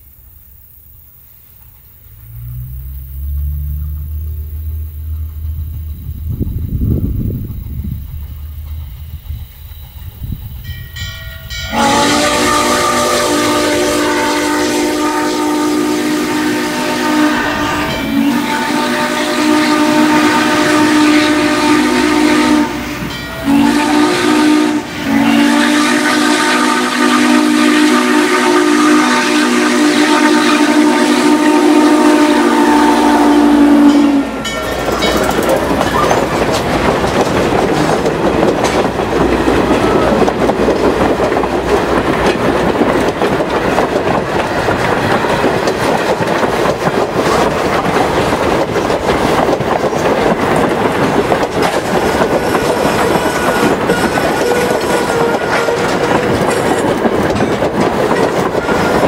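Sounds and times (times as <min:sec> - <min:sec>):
train wheels clicking on rail joints: 0:00.0 - 0:15.1, 0:33.0 - 0:59.0
steam locomotive whistle: 0:10.6 - 0:36.4, 0:39.5 - 0:40.3, 0:51.8 - 0:57.1, 0:58.1 - 0:59.0.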